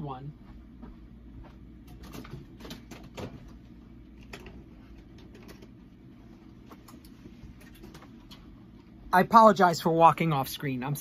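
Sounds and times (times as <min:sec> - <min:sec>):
low room hum: 0:00.0 - 0:11.0
faint clicks and knocks: 0:00.8 - 0:06.0.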